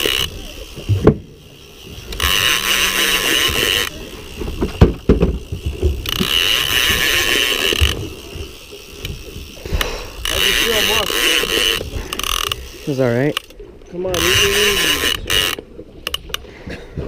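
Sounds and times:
fishing reel whirring: 0.0s - 16.5s
sharp knocks: 4.6s - 6.4s.

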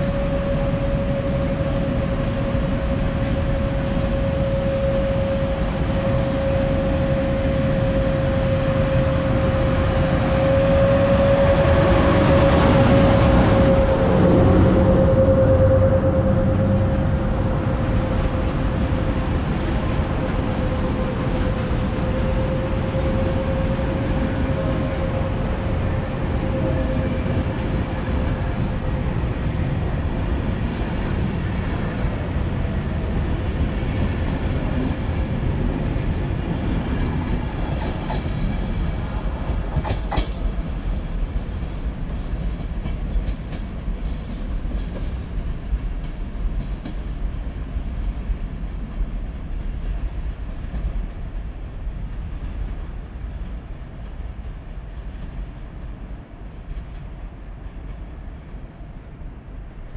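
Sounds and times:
train rumble: 0.0s - 59.9s
train wheels clacking over rail joints: 36.7s - 47.2s.

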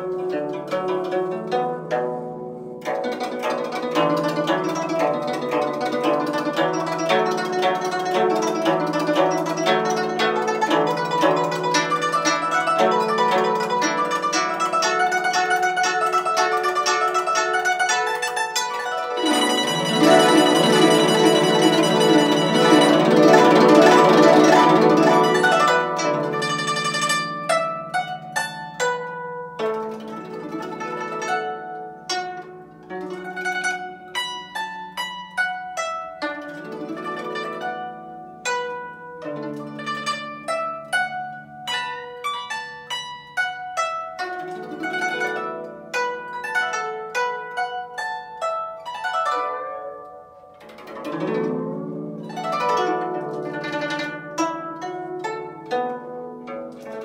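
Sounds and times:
plucked zither notes: 0.0s - 57.0s
glissando across strings: 3.1s - 28.6s.

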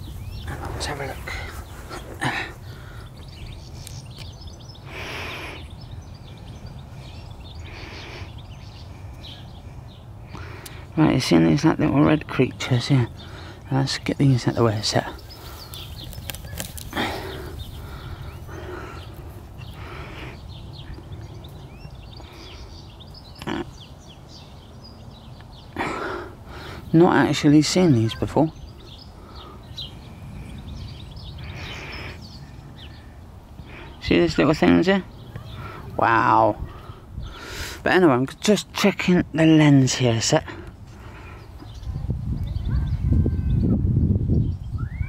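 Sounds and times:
wind rumble on microphone: 0.0s - 4.8s, 28.6s - 33.6s, 40.8s - 45.0s
wind buffeting microphone: 0.0s - 4.9s, 13.1s - 25.7s, 26.4s - 37.6s, 40.7s - 45.0s
small birds chirping: 0.0s - 45.0s
faint bird chirps: 41.3s - 45.0s.

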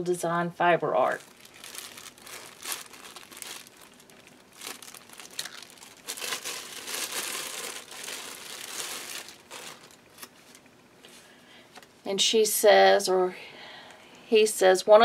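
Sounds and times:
plastic bag crinkling: 1.0s - 10.6s.

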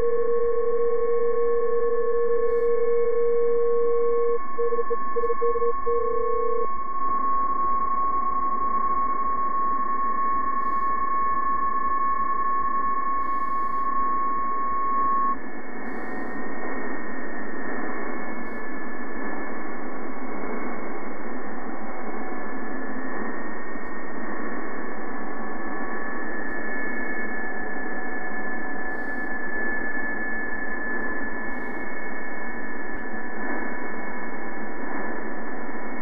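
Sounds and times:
thin steady data tones: 0.0s - 20.0s, 22.0s - 36.0s
shortwave radio hiss: 13.2s - 13.9s.

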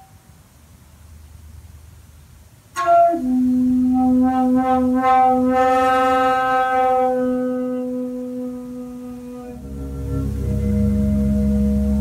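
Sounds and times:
horn-like wind instrument note: 2.8s - 12.0s.

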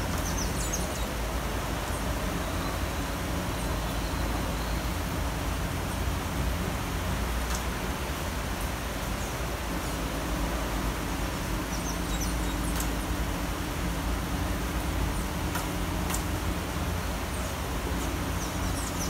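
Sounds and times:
city rain: 0.0s - 19.0s
low traffic rumble: 0.0s - 19.0s.

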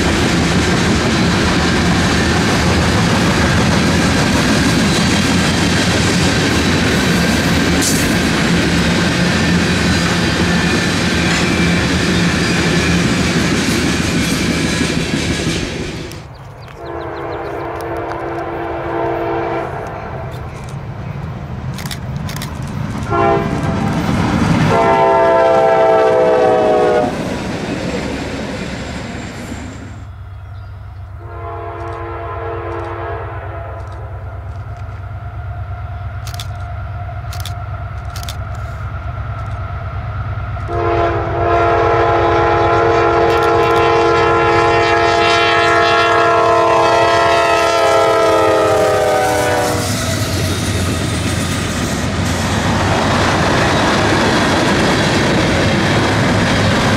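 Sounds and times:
low rumble of passing train: 0.0s - 56.9s
locomotive air horn blasts: 16.8s - 20.3s, 23.1s - 24.1s, 24.7s - 27.2s, 31.2s - 34.1s, 40.7s - 50.0s.

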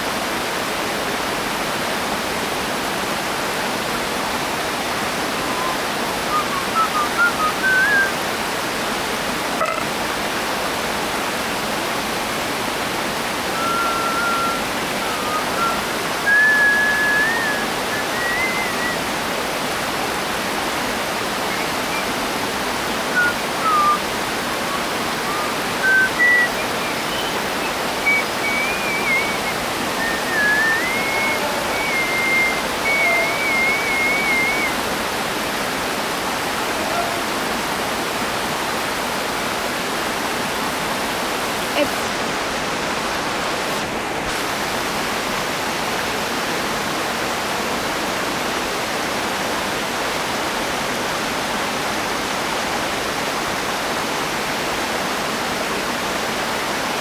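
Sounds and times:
stream water flowing: 0.0s - 57.0s
high wavering whistled notes: 5.4s - 8.1s, 13.6s - 19.0s, 23.1s - 34.8s.

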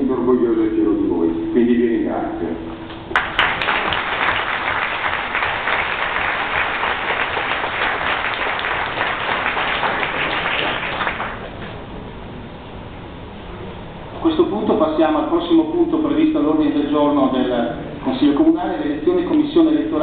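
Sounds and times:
crowd applauding: 3.1s - 11.8s.

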